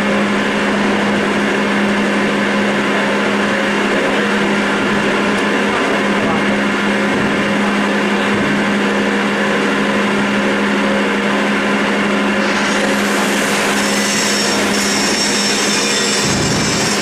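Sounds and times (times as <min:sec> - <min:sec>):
machine hum: 0:00.0 - 0:17.0
lathe cutting metal: 0:11.8 - 0:17.0
thin high whine: 0:12.3 - 0:17.0.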